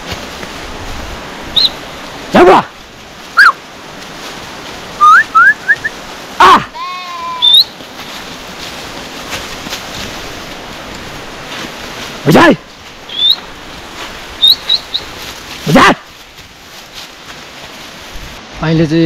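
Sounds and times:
shepherd calling: 3.4s - 3.6s, 5.0s - 7.8s, 13.0s - 13.6s, 14.4s - 16.1s
short rising whistles: 5.0s - 5.9s.

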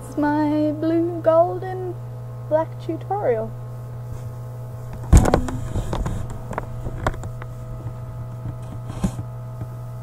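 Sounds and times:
low electrical hum: 0.0s - 10.0s
camera handling knocks and rubs: 4.9s - 9.3s.

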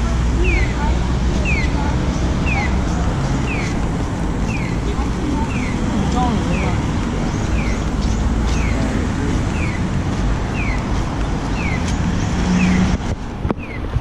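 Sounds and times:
street traffic noise: 0.0s - 14.0s
crossing signal chirping: 0.4s - 3.8s, 4.4s - 4.9s, 10.5s - 10.8s, 11.6s - 11.9s.

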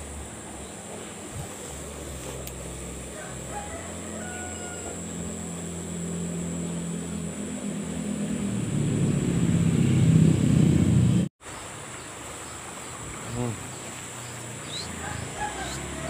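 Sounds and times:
motor engine humming: 0.0s - 11.3s.

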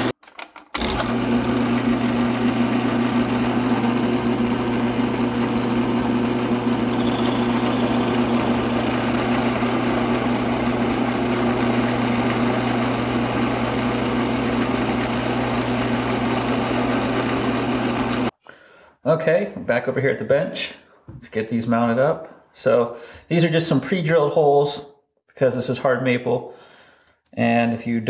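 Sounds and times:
drill press motor humming: 0.0s - 18.3s
drill bit boring into wood: 0.8s - 18.3s.

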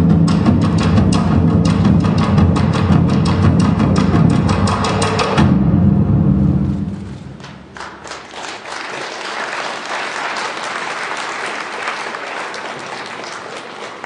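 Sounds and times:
audience applauding: 7.4s - 14.0s.

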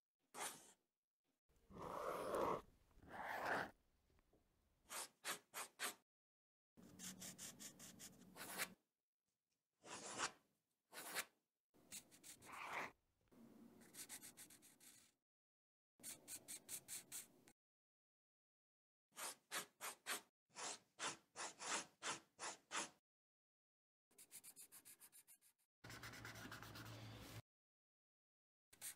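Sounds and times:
pencil scratching on paper: 0.4s - 0.8s, 4.9s - 6.0s, 6.8s - 8.8s, 9.8s - 13.0s, 13.8s - 15.2s, 16.0s - 17.4s, 19.2s - 23.0s, 24.2s - 27.4s.

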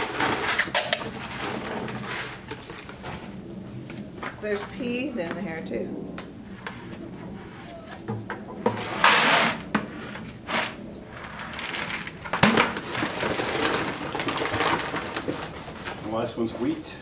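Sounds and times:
rustling of feed sacks: 10.3s - 17.0s.

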